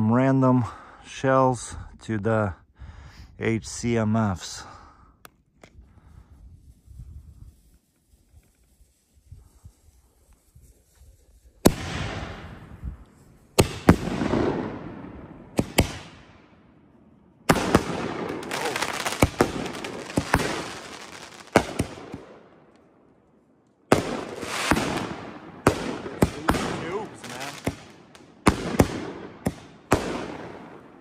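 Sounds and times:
crackle of burning stars: 3.7 - 31.0
fireworks bangs: 11.6 - 16.5, 17.4 - 22.5, 23.9 - 31.0.

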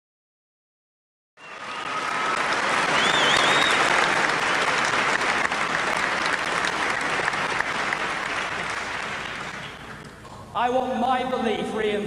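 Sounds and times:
large audience applauding: 1.4 - 10.2.

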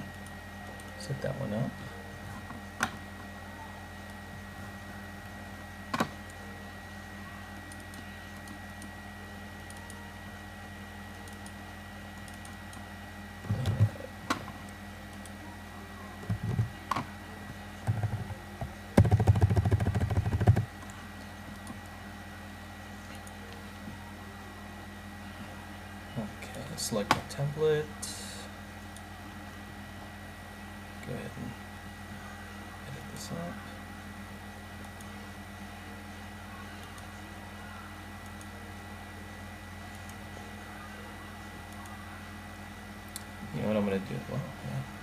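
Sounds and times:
faint electrical hum: 0.0 - 45.0
keyboard typing: 19.0 - 21.0.

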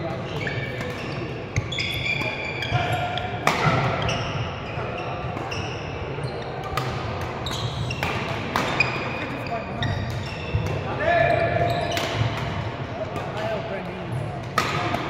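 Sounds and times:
shoes squeaking on court floor: 0.0 - 14.9
murmur of voices: 0.0 - 15.0
racket hitting shuttlecock: 2.1 - 4.5, 6.6 - 10.8, 11.9 - 13.4, 14.4 - 15.0.

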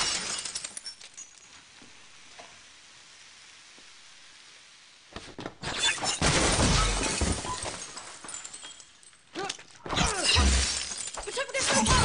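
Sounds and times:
glass shattering crashes: 0.0 - 1.5, 5.6 - 12.0.

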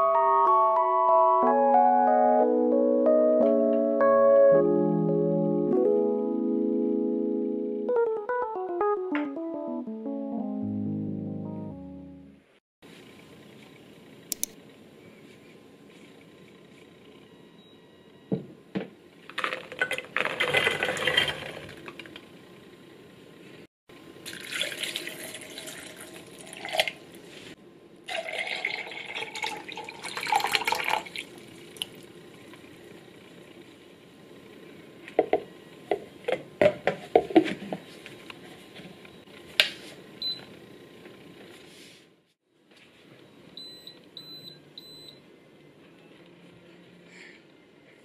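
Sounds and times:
water pouring into jug: 24.3 - 27.0, 28.1 - 32.0.

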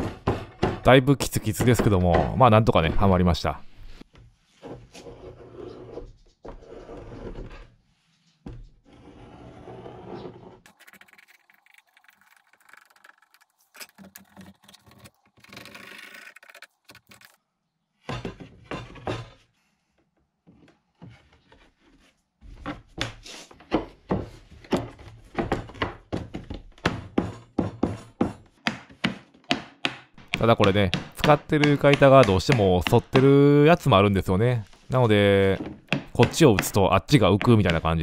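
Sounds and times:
sharp wooden knocks: 0.0 - 3.2, 22.9 - 33.6, 35.4 - 38.0
wooden boards scraping and thudding: 0.0 - 3.2, 18.0 - 19.5, 20.5 - 33.4.

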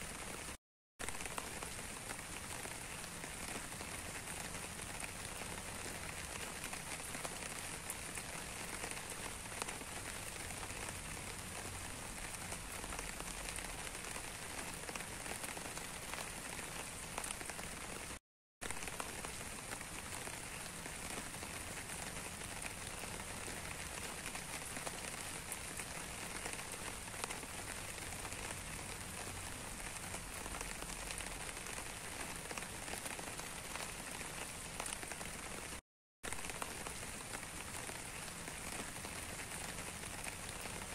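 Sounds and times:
steady rain falling: 0.0 - 40.9
raindrops ticking close by: 0.1 - 40.9.

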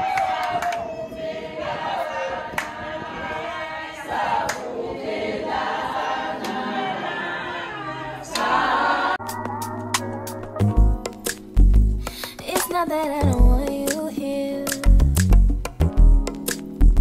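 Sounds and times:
group singing unaccompanied: 0.0 - 10.7
hand claps: 0.1 - 0.8, 4.4 - 4.7, 8.3 - 8.5.

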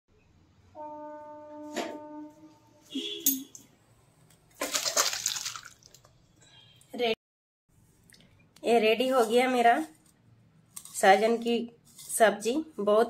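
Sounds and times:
liquid splashing pour: 4.6 - 6.2.

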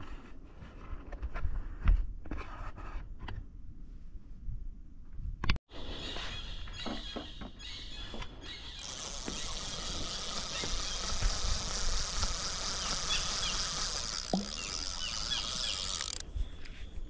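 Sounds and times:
fishing reel whirring: 8.8 - 16.4.

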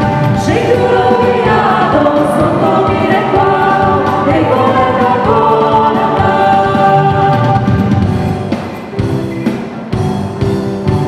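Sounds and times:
vocal group singing a carol: 0.0 - 8.1
musical accompaniment: 0.0 - 11.0
steady beat: 0.0 - 11.0.

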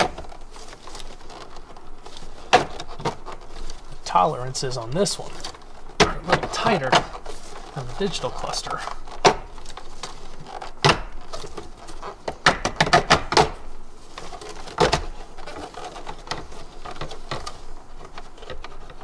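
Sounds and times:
plastic clicks and knocks: 9.1 - 13.6.

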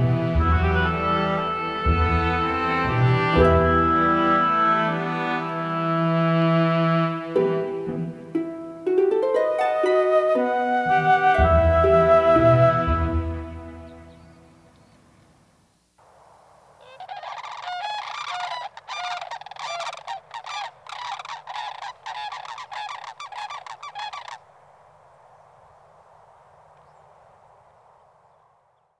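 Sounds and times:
faint background hiss: 0.0 - 28.9
cranes calling: 16.8 - 24.5.

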